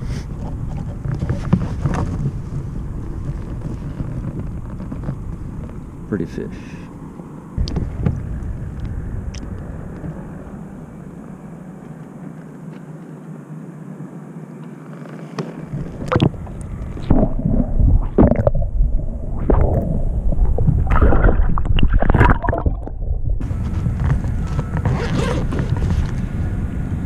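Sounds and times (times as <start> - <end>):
water lapping and hissing: 14.8 - 22.7
muffled underwater sloshing: 15.4 - 26.1.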